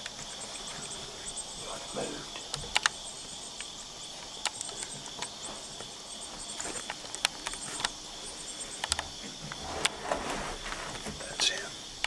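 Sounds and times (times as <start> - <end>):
crickets chirping: 0.0 - 12.0
insect high buzz: 0.0 - 12.0
sharp clicks: 2.3 - 8.0, 8.7 - 9.6.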